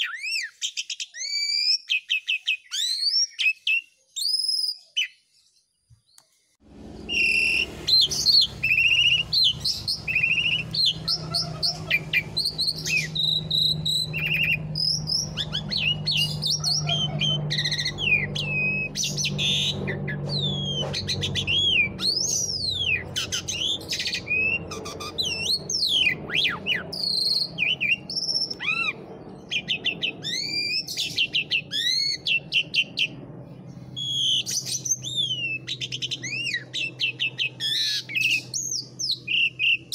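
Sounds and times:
starling singing: 6.8s - 39.9s.

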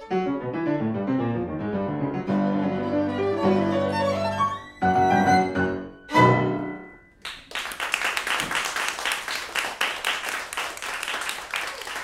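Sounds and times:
violin and piano: 0.0s - 6.9s
audience applause: 7.2s - 12.0s.

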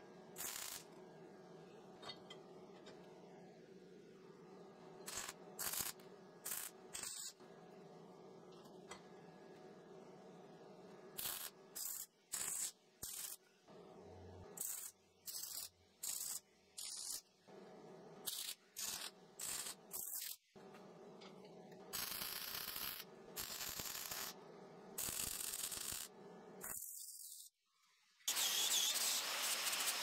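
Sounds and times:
welder arc crackling: 0.4s - 1.0s, 5.0s - 7.4s, 21.9s - 24.4s, 25.0s - 26.1s, 28.3s - 30.0s.

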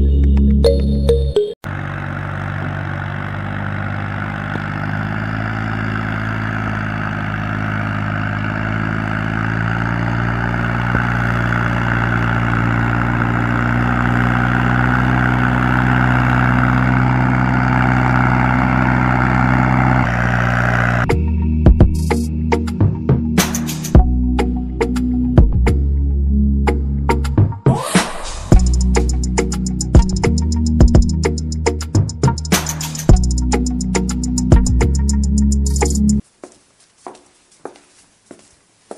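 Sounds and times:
tractor engine running: 1.6s - 21.1s, 28.5s - 38.9s.

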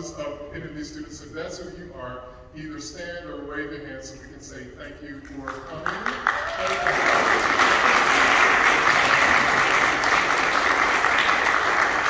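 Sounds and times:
audience applause: 5.8s - 12.0s.

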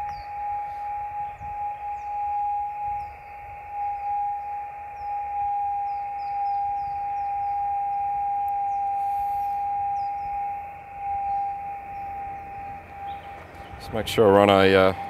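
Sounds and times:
birds chirping: 0.0s - 15.0s
receiver hiss: 8.3s - 11.6s
steady radio beat tone: 12.3s - 15.0s.

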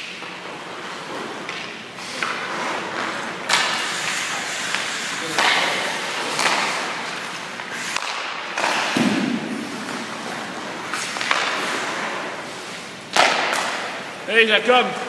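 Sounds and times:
skate blades scraping on ice: 0.0s - 14.2s
loud hit: 8.9s - 10.1s.

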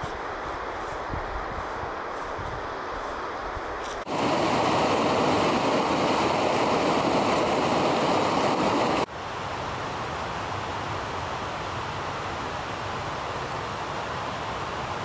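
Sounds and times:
steady outdoor noise: 0.0s - 15.0s
river rushing over rocks: 4.0s - 15.0s.

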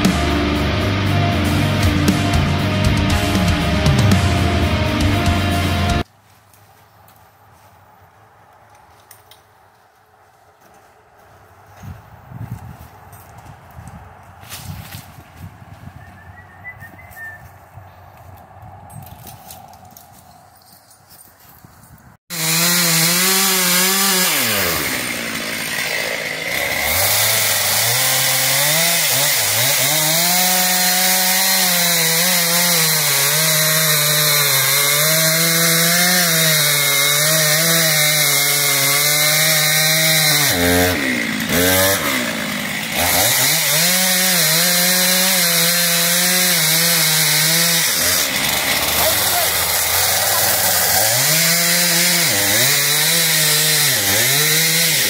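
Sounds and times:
chainsaw cutting tree trunk: 0.0s - 6.1s, 22.3s - 55.0s.

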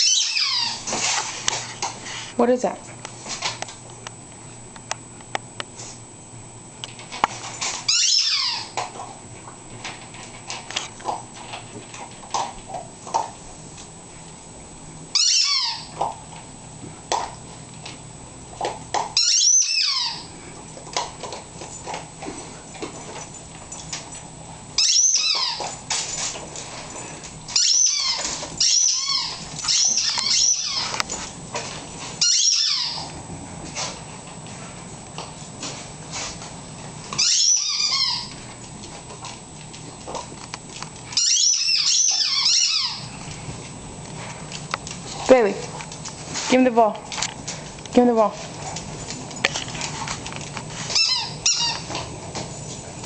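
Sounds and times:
squeaky toy ball squeaks: 0.0s - 0.8s, 7.9s - 8.8s, 15.2s - 15.9s, 19.2s - 20.3s, 24.8s - 25.6s, 27.6s - 30.9s, 32.2s - 33.0s, 37.2s - 38.3s, 41.2s - 43.0s, 51.0s - 51.8s.

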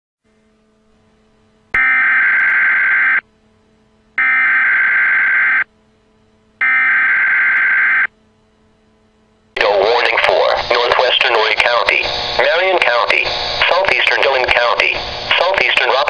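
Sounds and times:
faint steady hum: 0.2s - 16.0s
buzzy digital data bursts: 1.8s - 3.2s, 4.2s - 5.7s, 6.6s - 8.1s, 9.6s - 16.0s.

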